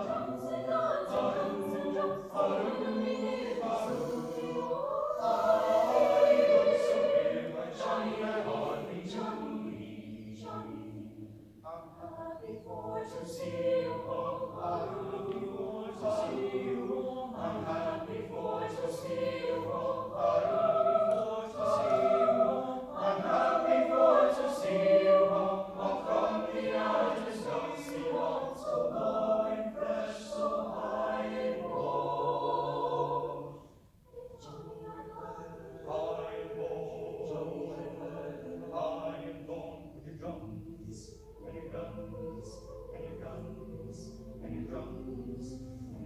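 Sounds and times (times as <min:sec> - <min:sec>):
mixed choir singing: 0:00.0 - 0:46.0.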